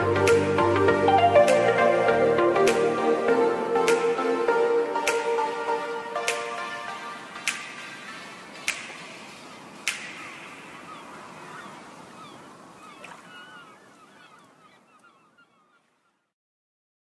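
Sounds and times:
sharp cracks: 7.4 - 10.8
birds squawking: 8.0 - 16.2.

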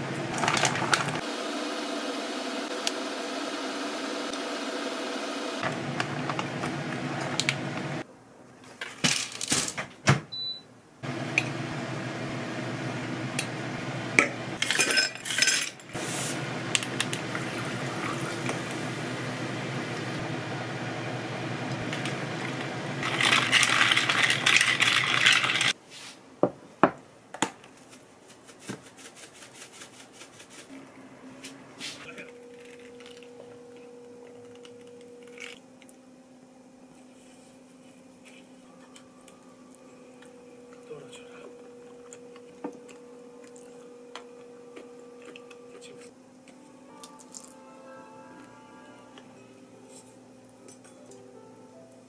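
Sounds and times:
dishes and glassware clinking: 14.6 - 15.8
drink being poured: 16.8 - 19.2.

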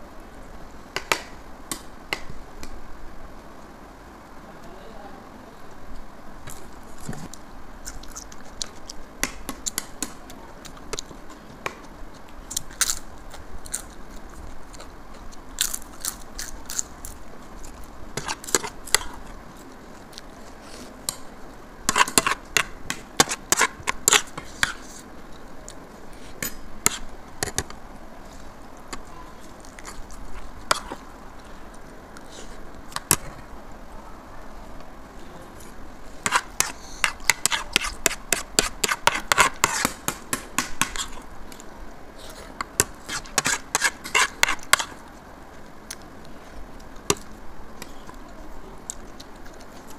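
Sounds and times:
person chewing: 7.8 - 9.0, 12.1 - 21.0, 48.9 - 49.9
spoons scraping ceramic plates: 43.1 - 44.9.

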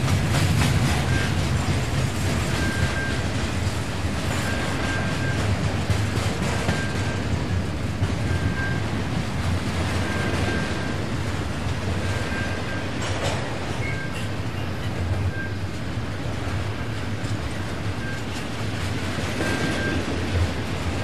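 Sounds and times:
train rumbling past: 0.0 - 21.0
short high tone from wheels: 2.4 - 3.2, 4.3 - 5.5, 8.2 - 8.9, 10.0 - 11.0, 12.1 - 13.0, 13.8 - 14.7, 19.4 - 20.2.

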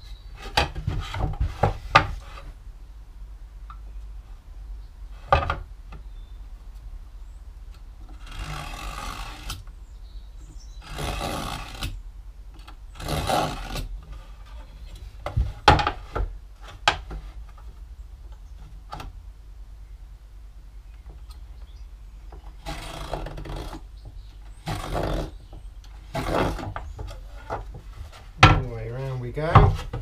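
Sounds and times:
knife scratching along wood: 26.1 - 26.8
tools knocking on wood: 29.5 - 30.0.

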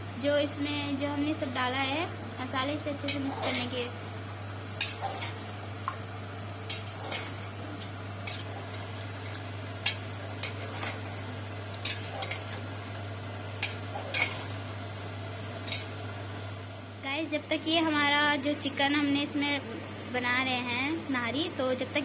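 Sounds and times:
steady low hum: 0.0 - 22.0
metal spoon scraping a pot: 4.8 - 5.4, 6.7 - 7.4, 8.2 - 11.2, 11.8 - 12.7, 13.6 - 14.6.

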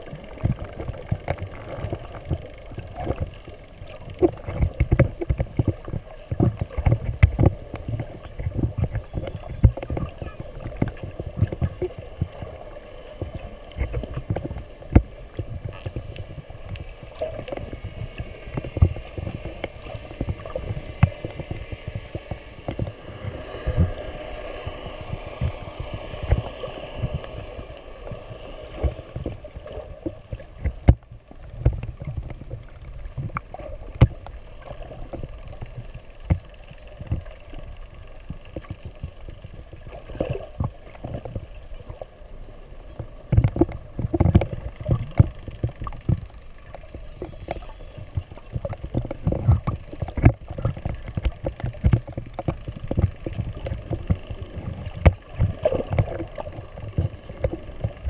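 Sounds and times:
muffled water sloshing: 0.0 - 58.0.

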